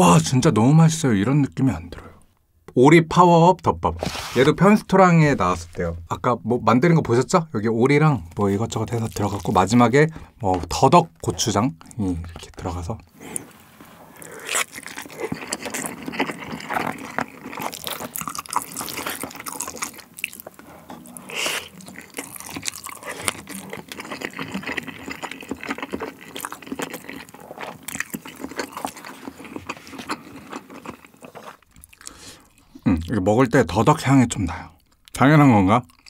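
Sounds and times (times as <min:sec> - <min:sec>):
mouth chewing wetly: 0:14.2 - 0:33.1.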